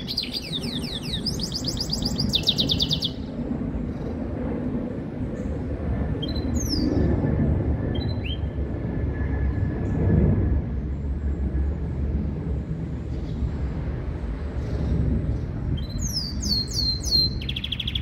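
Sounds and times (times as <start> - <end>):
bird chirps: 0.0 - 3.3, 8.0 - 8.6, 15.8 - 18.0
low background rumble: 0.0 - 18.0.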